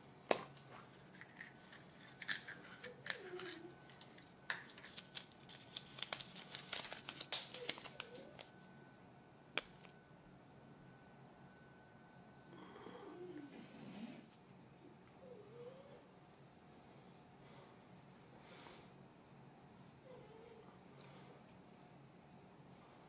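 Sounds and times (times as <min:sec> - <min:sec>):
paper crinkling: 0:00.5 - 0:08.7.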